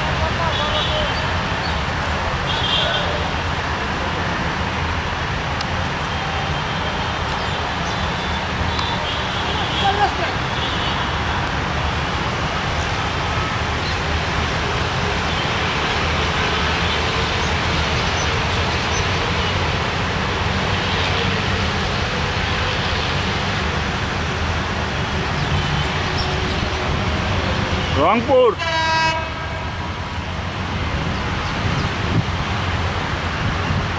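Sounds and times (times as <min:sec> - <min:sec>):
outdoor background noise: 0:00.0 - 0:33.9
diesel locomotive rumbling: 0:11.2 - 0:33.9.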